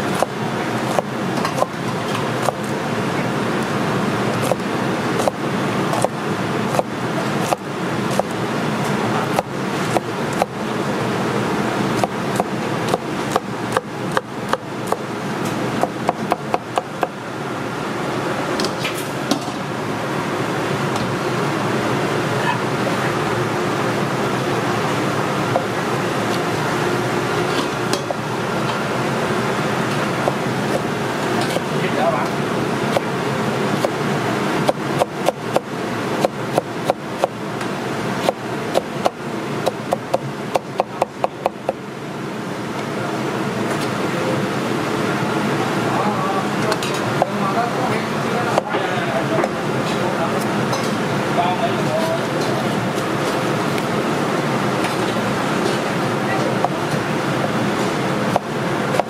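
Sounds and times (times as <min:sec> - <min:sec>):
cleaver chopping on wooden board: 0:00.9 - 0:01.7.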